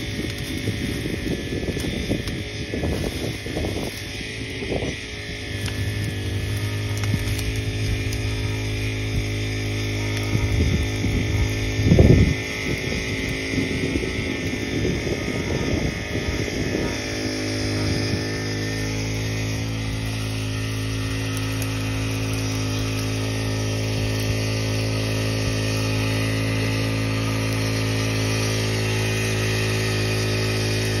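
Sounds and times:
winch motor running: 0.0 - 31.0.

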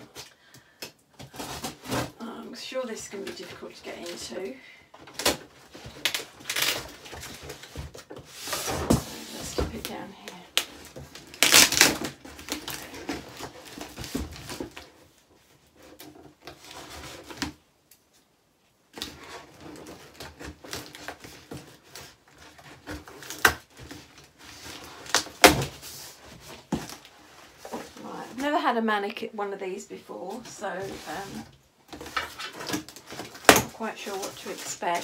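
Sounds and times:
cardboard box scraping: 5.7 - 10.1, 30.3 - 35.0.

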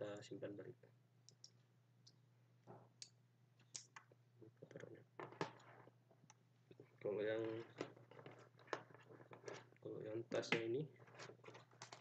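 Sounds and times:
faint clicks and plastic taps: 1.2 - 5.0.

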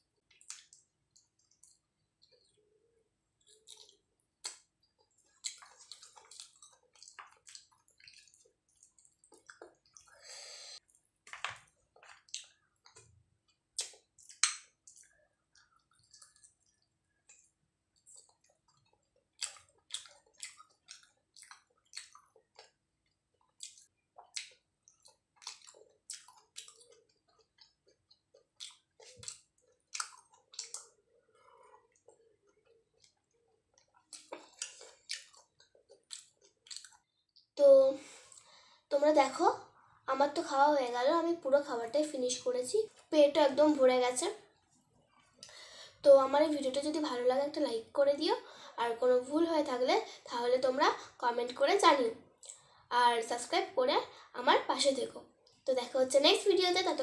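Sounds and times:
person chewing food: 0.2 - 37.5
wet mouth clicks and lip smacks: 0.3 - 2.5, 3.4 - 10.1, 12.0 - 22.8, 23.4 - 31.0, 31.9 - 37.5, 52.4 - 52.7.

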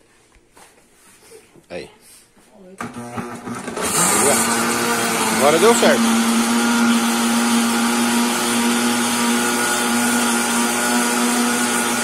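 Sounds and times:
blender running: 2.8 - 12.0.

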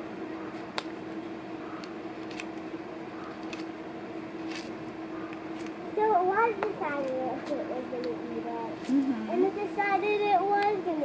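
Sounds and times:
low background hum: 0.0 - 11.0
tortoise chewing leaf crunches: 0.5 - 3.7, 4.3 - 5.8.

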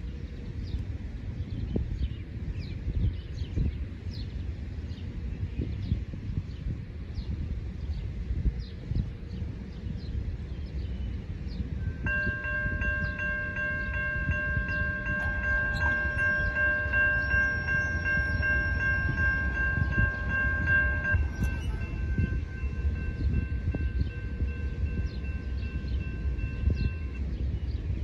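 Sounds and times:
railroad crossing bell ringing: 11.8 - 27.4
low rumble: 11.8 - 28.0.

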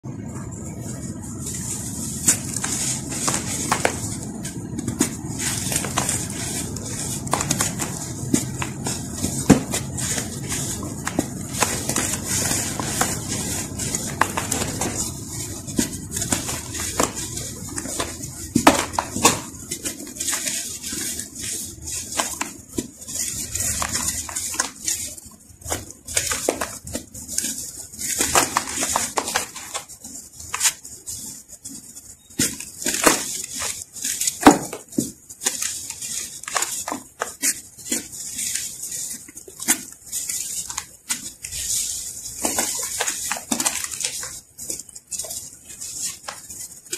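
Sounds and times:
sand chunks crunching: 2.0 - 19.6.

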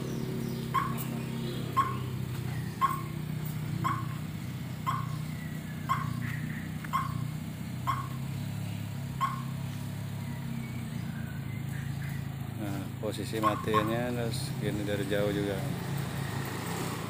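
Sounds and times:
car engine idling: 0.0 - 17.0
dog barking: 0.7 - 1.2, 1.8 - 2.1, 2.8 - 3.2, 3.8 - 4.2, 4.9 - 5.2, 5.9 - 7.2, 7.9 - 8.2, 9.2 - 9.6, 13.4 - 14.0.

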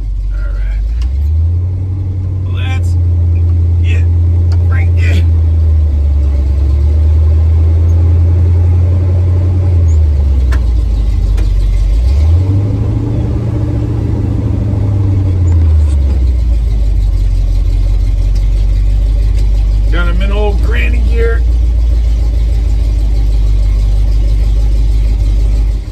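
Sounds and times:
truck engine running: 0.0 - 25.9.

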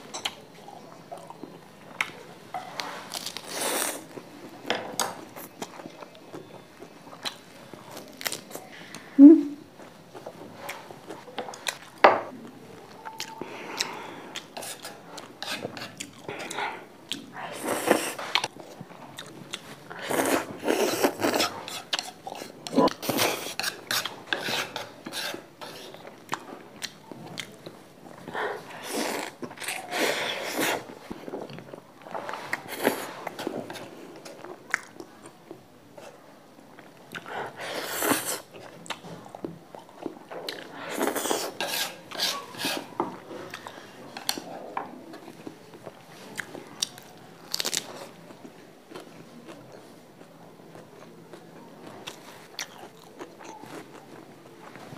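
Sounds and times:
slurping and wet chewing: 12.9 - 35.4.

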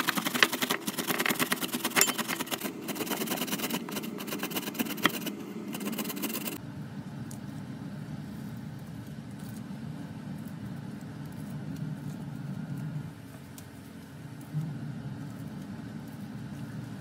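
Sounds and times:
tomato rasping on grater: 0.0 - 6.6.

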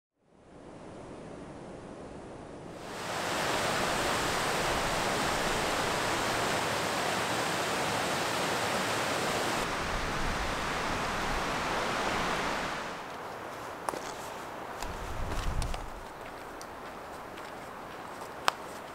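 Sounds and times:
outdoor hiss: 2.8 - 17.0
creek rushing over rocks: 2.8 - 18.9.

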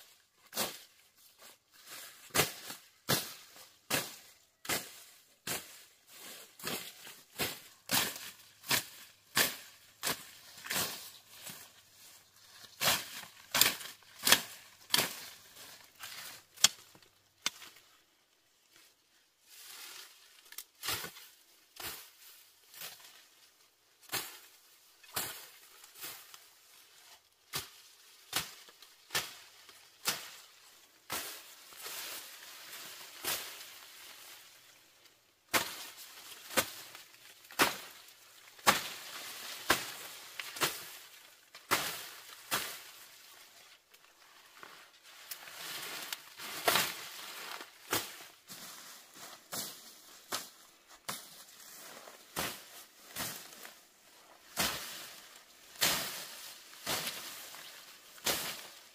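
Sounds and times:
rustling of cut stalks: 0.0 - 58.9
blade slashing grass: 2.3 - 11.7, 12.6 - 16.8, 35.5 - 41.1, 54.5 - 58.8.

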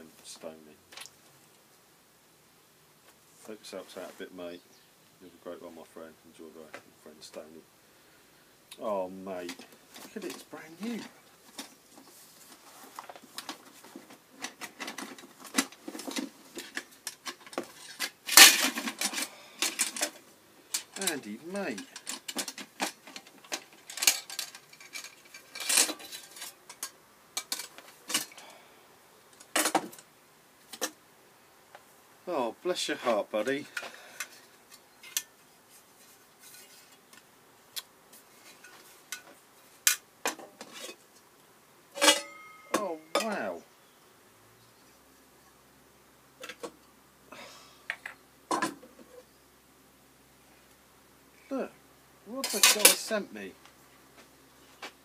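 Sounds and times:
faint rustling: 9.0 - 31.0, 31.6 - 41.3
paper and plastic wrapping rustling: 9.4 - 20.2
metal parts clinking: 14.4 - 28.4, 42.0 - 43.4, 52.4 - 53.1.

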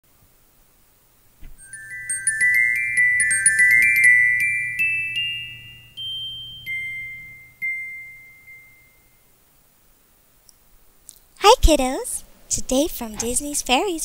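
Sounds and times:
glockenspiel chimes: 1.6 - 9.2.

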